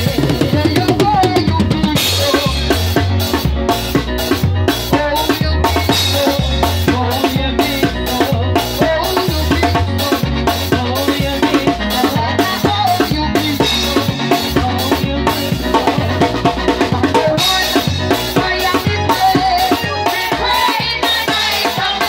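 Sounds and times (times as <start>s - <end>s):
bass notes: 0.0s - 22.0s
drum kit beat: 0.0s - 22.0s.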